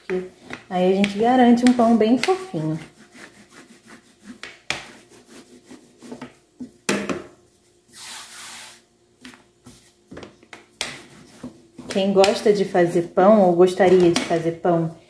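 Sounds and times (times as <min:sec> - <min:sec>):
dough rubbing on work surface: 0:02.5 - 0:06.8, 0:07.5 - 0:08.8, 0:10.8 - 0:11.8.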